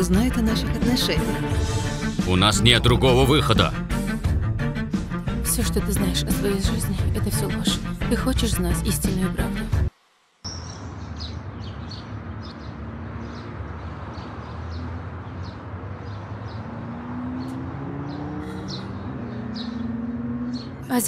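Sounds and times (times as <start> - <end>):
low rumble of traffic: 10.5 - 21.0
small birds chirping: 10.5 - 21.0.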